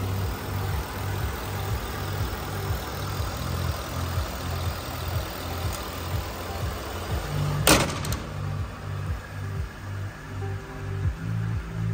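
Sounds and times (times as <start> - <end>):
truck engine idling: 0.0 - 11.9
hood slamming shut: 7.6 - 8.6.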